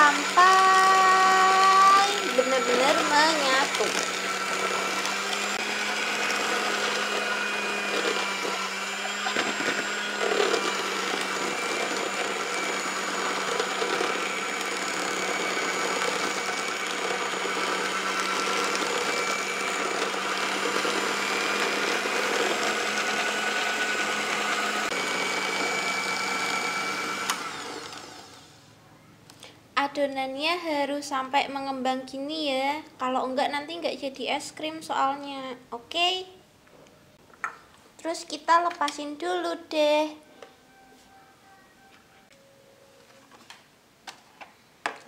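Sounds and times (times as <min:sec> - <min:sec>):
electric hand mixer running: 0:00.0 - 0:28.6.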